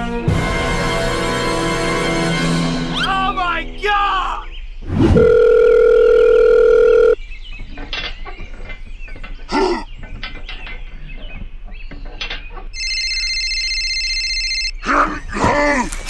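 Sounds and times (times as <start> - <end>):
short cry: 3.0 - 4.5
telephone dial tone: 5.2 - 7.2, 12.8 - 14.8.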